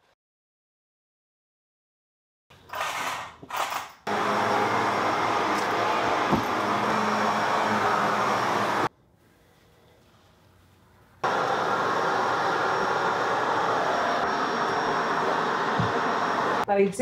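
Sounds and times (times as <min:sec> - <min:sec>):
upright vacuum cleaner running: 0:04.1 - 0:08.9, 0:11.2 - 0:16.7.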